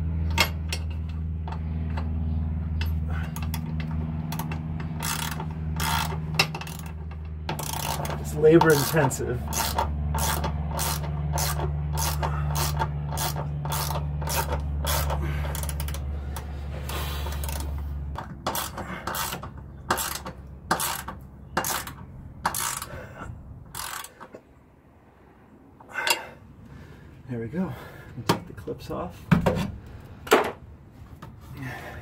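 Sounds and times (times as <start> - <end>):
ratchet wrench pawl clicking: 2.8 - 16.5, 17.2 - 23.0, 23.7 - 24.3.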